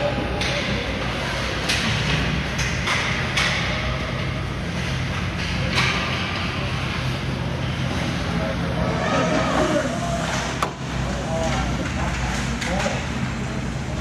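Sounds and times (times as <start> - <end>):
low arena hum: 0.0 - 14.0
hockey sticks and puck clacking: 0.4 - 3.7.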